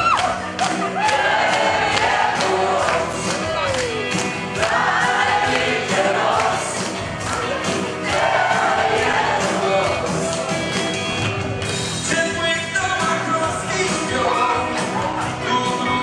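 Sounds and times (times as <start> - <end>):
band playing dance song: 0.0 - 16.0
steady drum beat: 0.4 - 16.0
person singing: 12.0 - 16.0.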